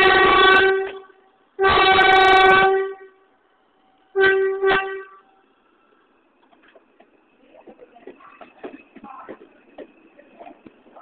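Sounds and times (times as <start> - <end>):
subway train horn blasts: 0.0 - 3.5, 4.1 - 5.4.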